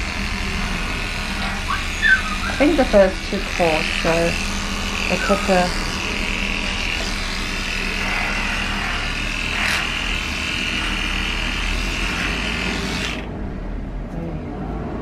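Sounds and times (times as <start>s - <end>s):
electric clipper buzzing: 0.0s - 13.3s
person talking: 2.0s - 4.4s, 5.1s - 5.8s.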